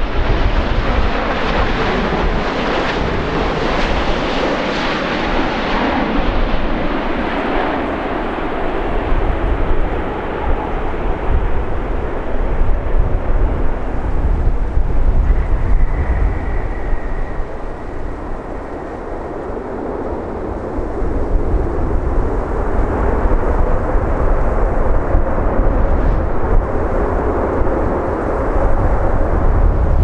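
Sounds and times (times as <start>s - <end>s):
jet engine noise: 0.0s - 30.0s
faint high whine: 14.3s - 20.6s.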